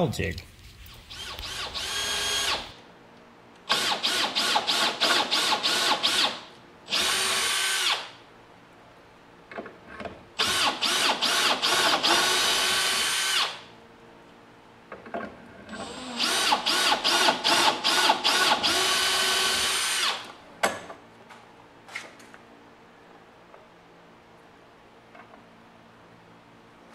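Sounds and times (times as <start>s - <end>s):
power drill whining: 0.9s - 2.8s, 3.7s - 8.2s, 10.4s - 13.6s, 15.8s - 20.3s.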